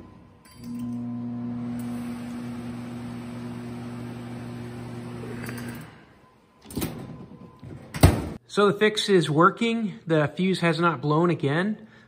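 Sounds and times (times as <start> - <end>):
microwave oven humming: 0.0 - 6.1.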